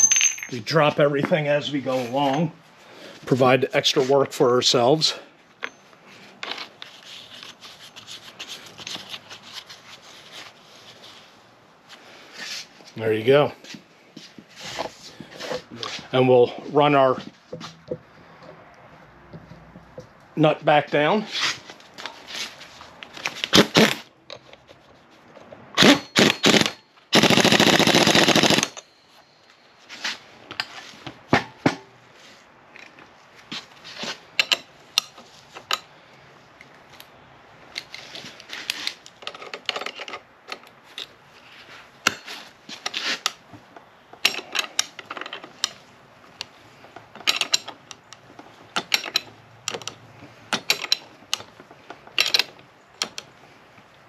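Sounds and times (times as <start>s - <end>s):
power wrench rattling: 0.0s - 0.6s, 23.2s - 24.1s, 25.8s - 28.9s, 47.2s - 53.3s
tools clicking and knocking: 0.0s - 0.6s, 23.2s - 26.8s, 34.4s - 35.9s, 38.6s - 41.2s, 42.0s - 45.8s, 46.4s - 53.3s.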